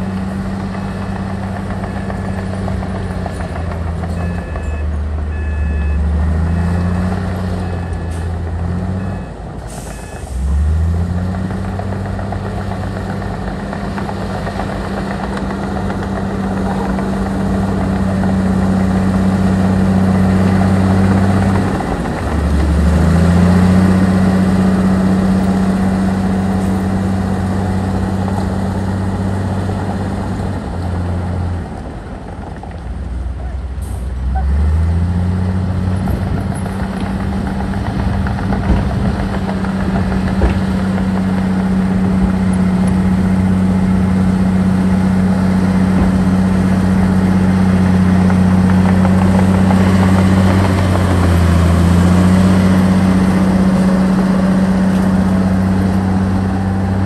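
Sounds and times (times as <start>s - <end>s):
diesel machinery engine: 0.0s - 57.0s
reversing alarm beeping: 4.1s - 6.9s.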